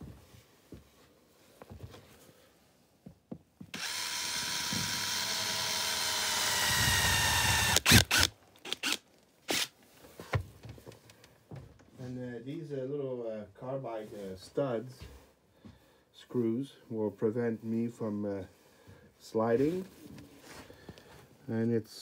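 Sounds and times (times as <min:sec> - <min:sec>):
power drill motor whining: 0:03.7 - 0:09.7.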